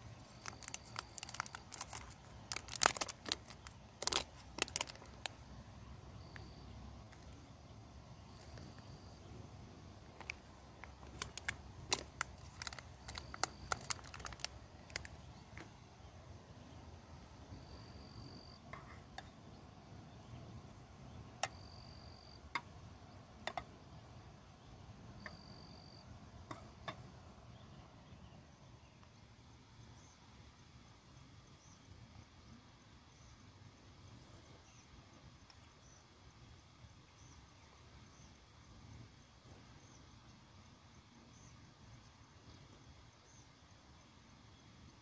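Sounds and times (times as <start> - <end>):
sharp clicks and ticks: 0.2 - 5.4, 10.1 - 15.7.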